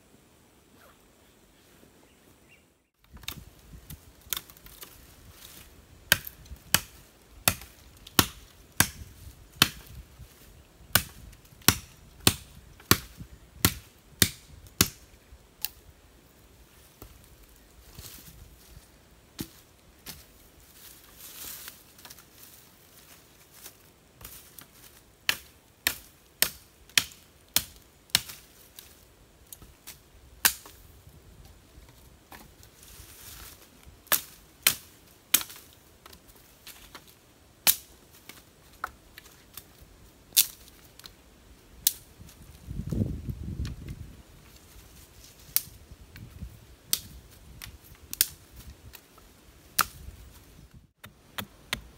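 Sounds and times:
machete chopping wooden stick: 6.1s - 10.0s, 10.9s - 15.0s, 25.3s - 28.4s, 30.4s - 30.8s, 34.1s - 36.2s, 49.7s - 50.0s, 51.0s - 51.9s.

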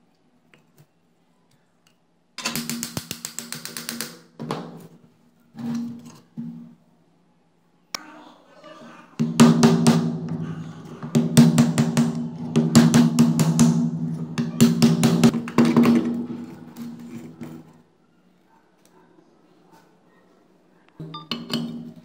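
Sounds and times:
hammer striking metal punch: 9.2s - 16.4s.

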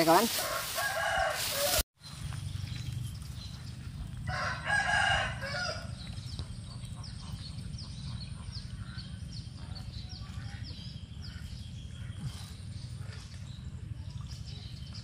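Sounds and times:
rooster crowing: 0.4s - 1.8s, 4.3s - 5.9s
low steady rumble: 2.1s - 15.0s.

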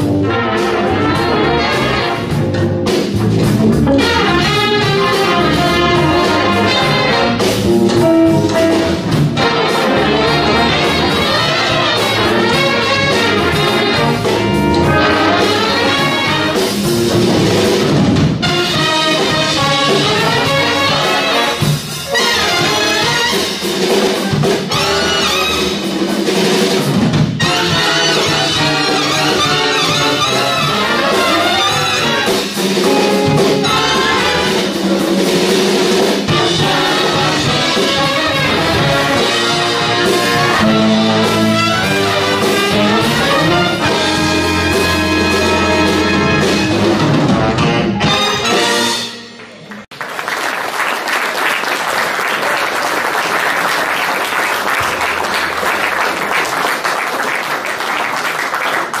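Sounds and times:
jazz big band playing: 0.0s - 49.7s, 52.5s - 57.3s
audience applause: 49.4s - 59.0s.

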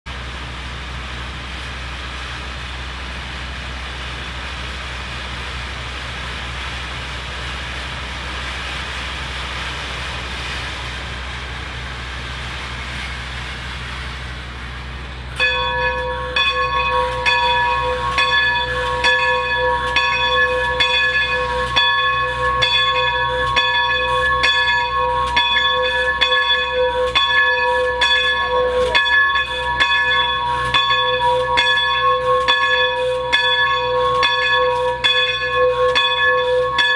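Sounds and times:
diesel locomotive idling: 0.1s - 36.9s
locomotive bell ringing: 15.4s - 36.9s.

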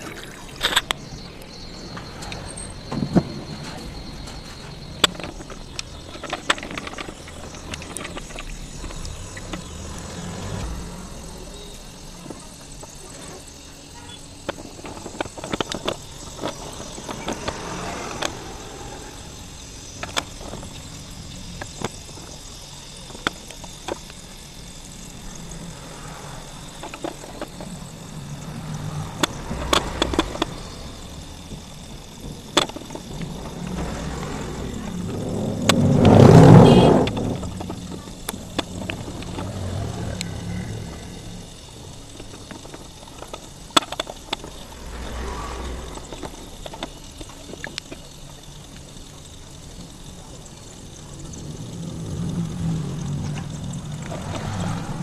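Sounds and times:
low steady rumble: 16.0s - 55.0s.

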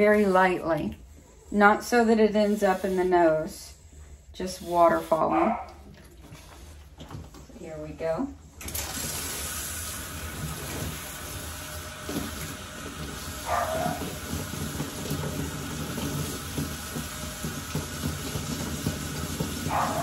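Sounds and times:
water splashing into tub: 8.6s - 20.0s
water spraying from nozzle: 8.6s - 20.0s.

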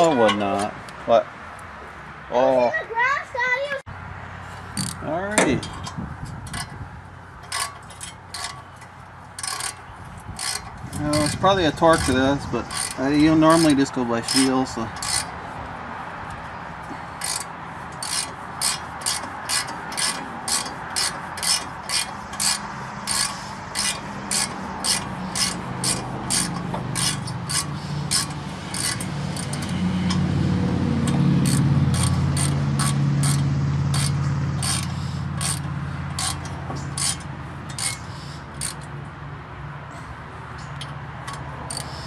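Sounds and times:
socket ratchet clicking: 9.4s - 15.4s, 17.2s - 30.3s, 31.0s - 39.0s, 40.6s - 42.0s.

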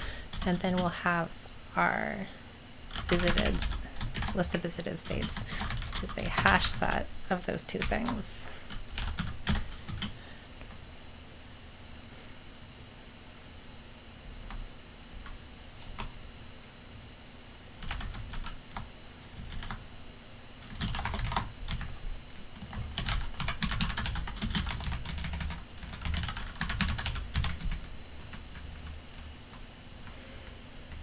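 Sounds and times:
typing on keyboard: 2.9s - 6.6s, 7.8s - 10.8s, 17.8s - 19.8s, 20.6s - 22.0s, 22.6s - 29.6s.

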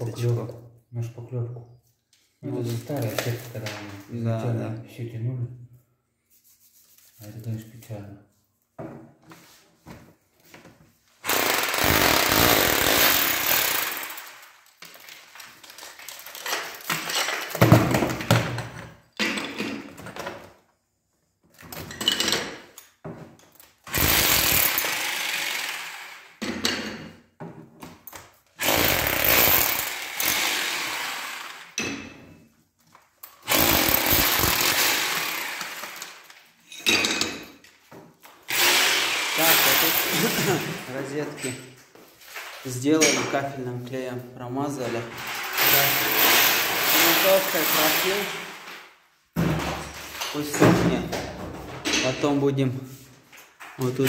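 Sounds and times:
power chisel hammering tiles: 11.2s - 14.4s, 23.9s - 26.8s, 28.6s - 31.9s, 33.4s - 36.1s, 38.5s - 40.7s, 45.4s - 48.7s.

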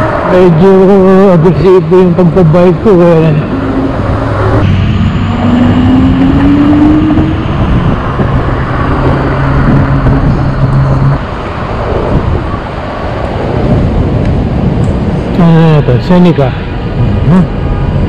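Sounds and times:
car engines: 0.0s - 18.0s
low hum: 0.0s - 18.0s
road and traffic noise: 0.0s - 18.0s
tone rising in pitch: 2.8s - 11.3s.

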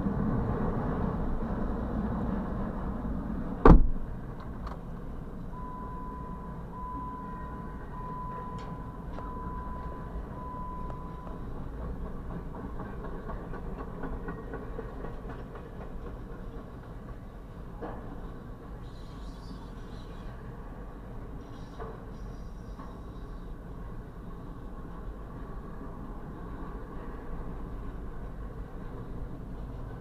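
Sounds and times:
train wheels rumbling on rails: 0.0s - 30.0s
steady beeps: 5.5s - 11.5s.

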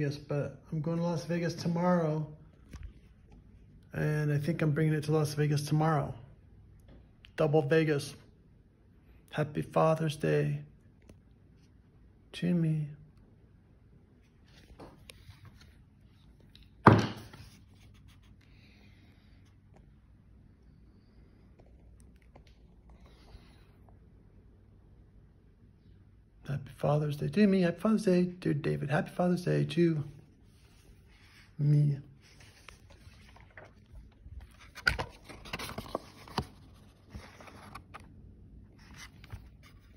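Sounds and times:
book pages rustling: 14.2s - 18.6s, 30.2s - 31.6s, 32.2s - 39.9s
phone being handled: 32.3s - 38.2s.

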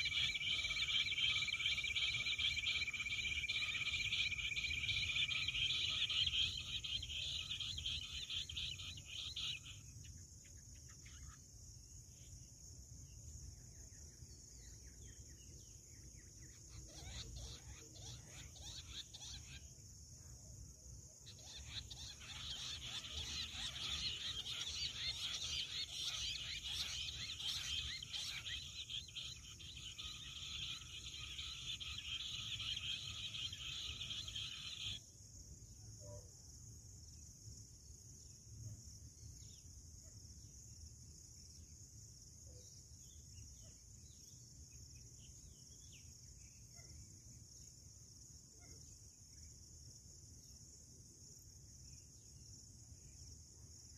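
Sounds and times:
quail chorus chattering and trilling: 0.0s - 9.8s, 16.5s - 19.6s, 21.3s - 35.0s
faint bird chirps: 0.0s - 53.9s
insect drone: 0.0s - 53.9s.

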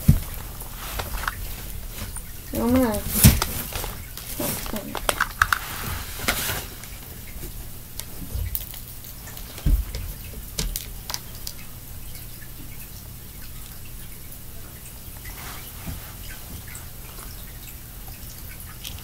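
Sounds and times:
rustling of hands searching: 0.0s - 7.0s.

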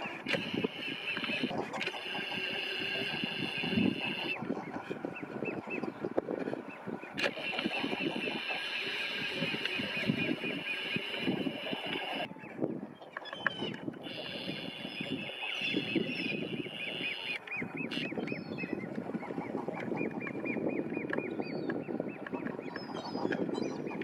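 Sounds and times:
duckling peeping: 0.3s - 5.9s, 7.2s - 12.3s, 13.2s - 21.2s.

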